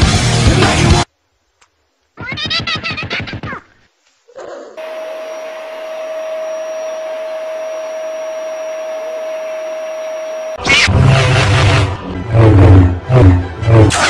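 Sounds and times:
appliance motor whooshing and whining: 4.8s - 12.0s.

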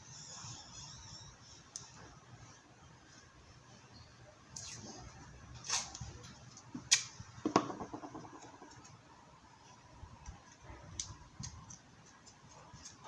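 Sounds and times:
hard objects knocking on a workbench: 7.4s - 8.7s.

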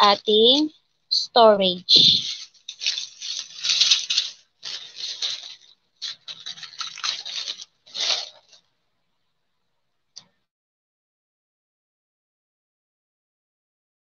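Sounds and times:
plastic bags crinkling: 1.9s - 8.7s.

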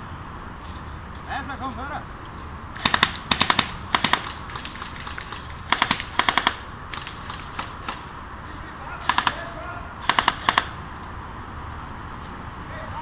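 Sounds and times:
airsoft gun firing bursts: 2.8s - 8.1s, 9.0s - 10.8s.

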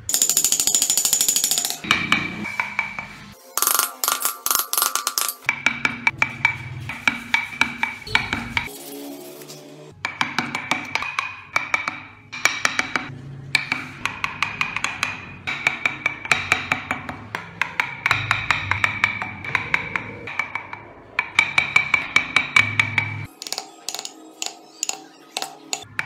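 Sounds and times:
chisel tapping wood: 10.0s - 26.0s.

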